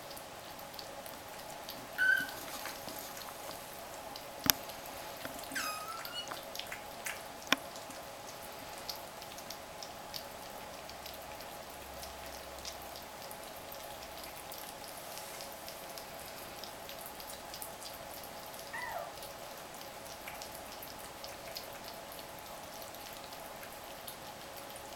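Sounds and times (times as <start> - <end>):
kittens chewing and licking: 0.7 - 12.8
high squeak: 2.0 - 2.5, 5.5 - 6.4.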